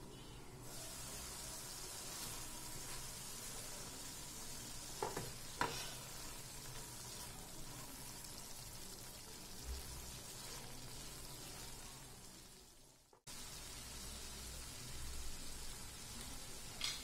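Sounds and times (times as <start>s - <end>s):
gravy sizzling in a frying pan: 0.6s - 17.0s
spatula stirring in pan: 0.7s - 12.0s.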